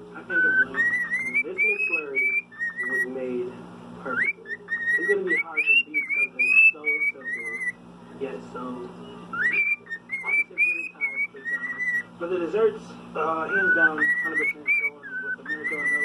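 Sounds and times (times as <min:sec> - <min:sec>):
cockatiel whistling: 0:00.3 - 0:03.2, 0:04.0 - 0:07.8, 0:09.1 - 0:12.1, 0:13.3 - 0:16.0.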